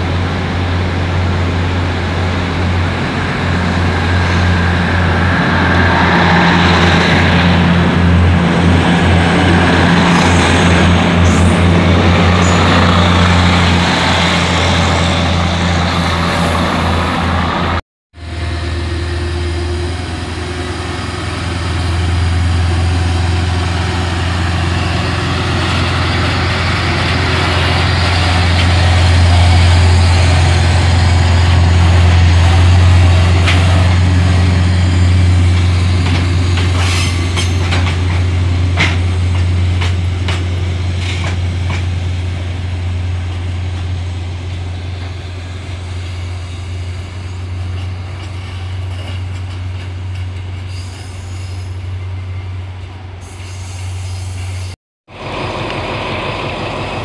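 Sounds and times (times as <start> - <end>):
diesel locomotive running: 0.0 - 57.0
diesel train rumbling past: 0.0 - 57.0
train wheels clicking on rails: 25.4 - 42.2, 47.6 - 51.6.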